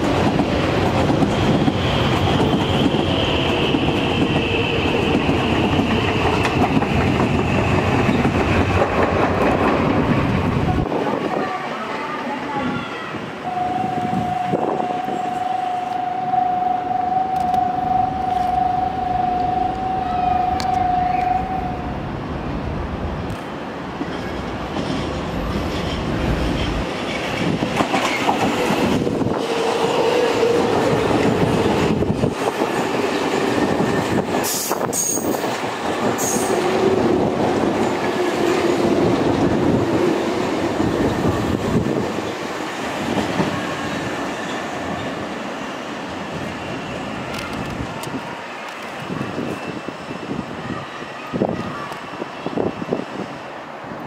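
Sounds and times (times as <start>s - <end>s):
wheels clacking over rail joints: 0.0s - 10.7s, 24.0s - 42.4s
train rumble: 0.0s - 54.0s
squealing wheels: 1.3s - 8.5s, 33.6s - 35.5s
steady high tone: 13.4s - 22.3s.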